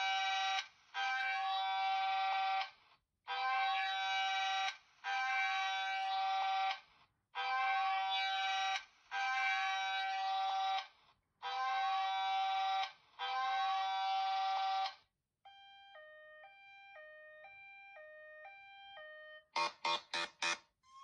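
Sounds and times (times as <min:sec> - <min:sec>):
electronic alarm tone: 0:15.5 - 0:21.0
two-note siren tone: 0:15.5 - 0:21.0.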